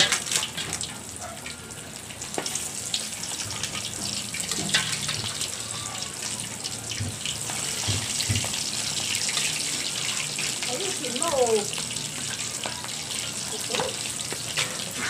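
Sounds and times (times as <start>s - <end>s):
chicken sizzling in hot oil: 0.0s - 15.0s
spatula knocking in pan: 7.0s - 8.6s.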